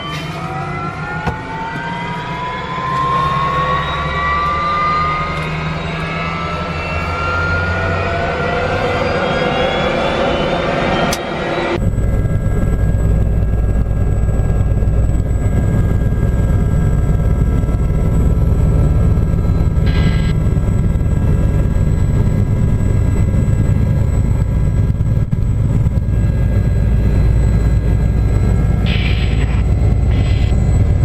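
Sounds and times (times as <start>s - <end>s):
helicopter rotor and turbine rumble: 0.0s - 31.0s
faint steady whine: 11.8s - 31.0s.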